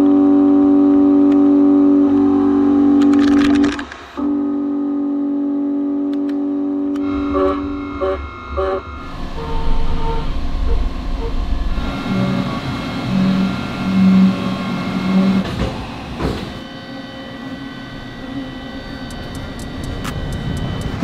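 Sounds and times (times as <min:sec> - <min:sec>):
milling machine cutting whine: 0:00.0 - 0:21.0
low rumble: 0:06.9 - 0:15.0.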